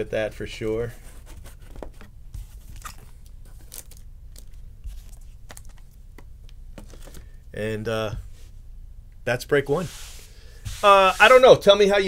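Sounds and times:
low steady hum: 0.0 - 12.0
trading cards clicking and rustling: 1.7 - 7.3.

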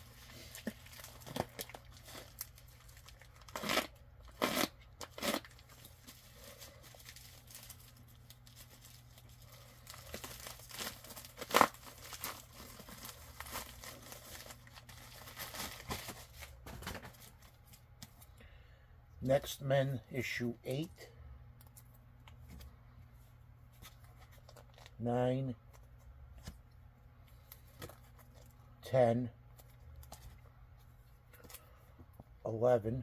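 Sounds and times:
packaging tearing: 0.0 - 16.6
packaging rustling and crinkling: 0.0 - 18.3, 23.8 - 25.0.

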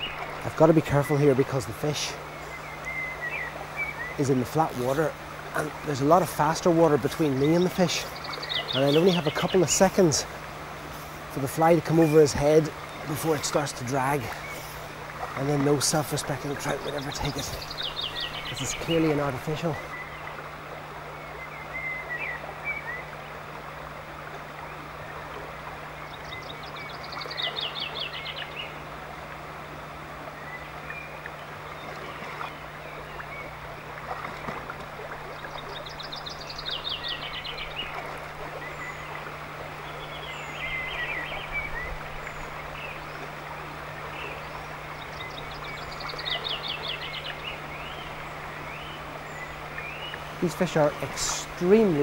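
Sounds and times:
songbird trilled phrase: 0.0 - 10.3, 15.3 - 20.1, 44.2 - 52.0
river water rushing: 0.0 - 52.0
bird chirps: 7.2 - 9.8.

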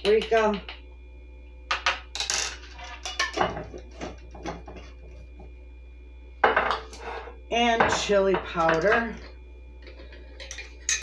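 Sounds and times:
low hum: 0.0 - 11.0
metal spoon clinking on glass: 10.4 - 11.0.

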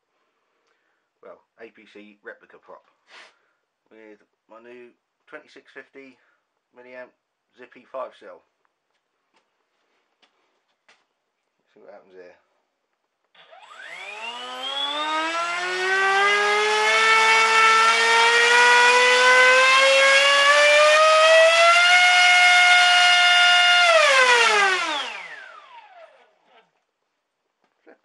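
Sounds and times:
electric motor propeller whine: 13.4 - 26.4.

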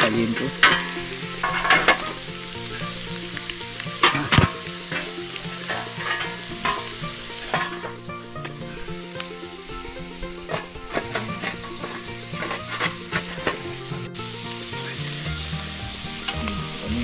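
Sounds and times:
food sizzling on hot stones: 0.0 - 17.0
stones knocking: 3.4 - 8.6, 10.5 - 14.0.

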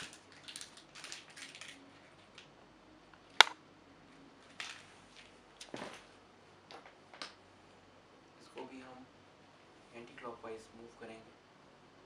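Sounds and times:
plastic wrapping crinkling: 0.0 - 2.6, 4.4 - 6.1.

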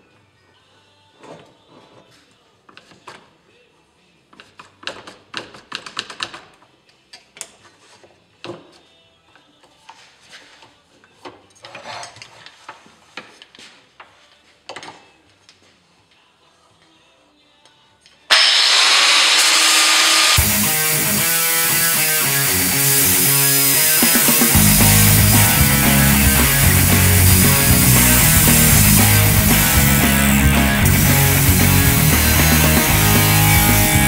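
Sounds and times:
angle grinder running: 18.3 - 34.0.

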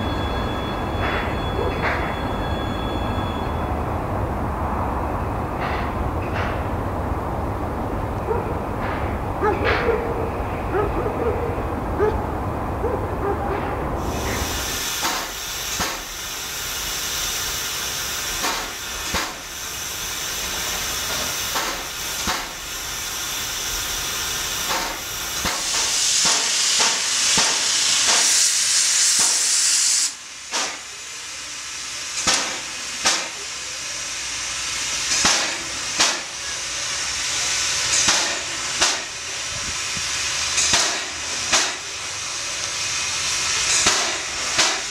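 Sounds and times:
locomotive puffs and clanks: 0.0 - 3.7, 8.3 - 10.1, 13.3 - 44.9
steam locomotive hissing: 0.0 - 44.9
high hiss of escaping steam: 14.0 - 44.9.

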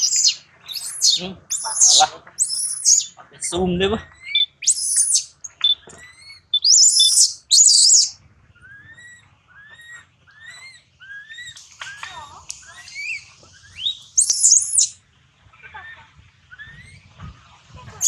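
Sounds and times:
baby monkey crying: 0.0 - 3.2, 4.0 - 11.6, 12.8 - 15.0.

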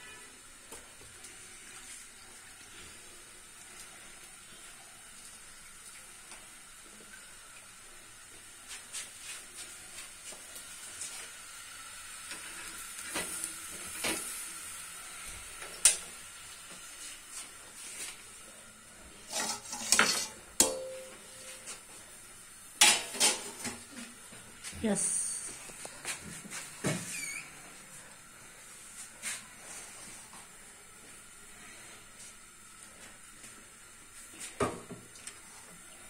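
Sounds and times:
faint steady hiss: 0.0 - 36.0
steel bowls and utensils clinking: 19.2 - 21.7.

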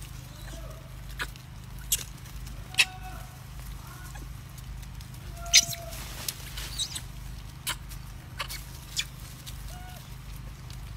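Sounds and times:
low hum: 0.0 - 10.9
monkeys squeaking: 0.4 - 2.1, 5.4 - 5.9, 6.6 - 9.2.

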